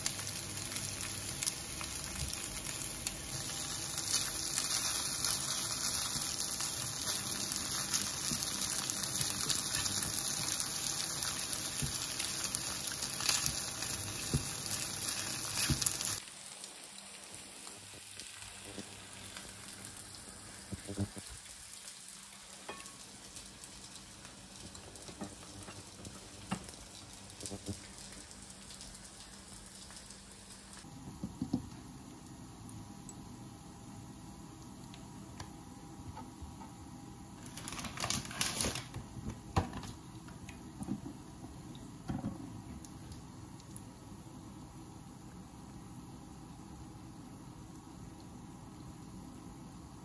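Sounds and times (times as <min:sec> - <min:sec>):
food sizzling in a frying pan: 0:00.0 - 0:30.9.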